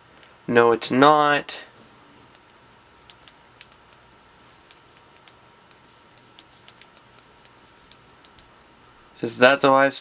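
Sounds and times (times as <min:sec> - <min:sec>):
faint keyboard typing clicks: 0:02.3 - 0:04.0, 0:04.6 - 0:08.5.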